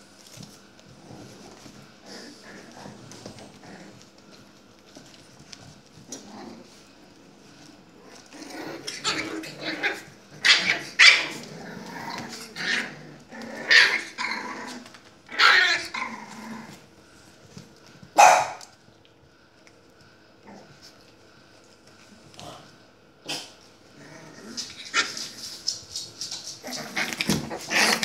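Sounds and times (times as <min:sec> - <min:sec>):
puppies barking and growling: 0:00.3 - 0:17.0, 0:18.2 - 0:18.7, 0:23.3 - 0:28.0.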